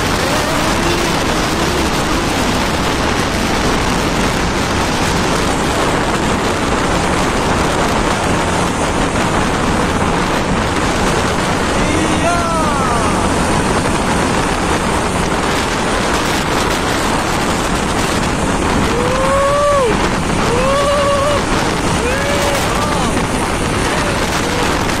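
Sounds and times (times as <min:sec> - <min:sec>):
vehicle road and wind noise: 0:00.0 - 0:25.0.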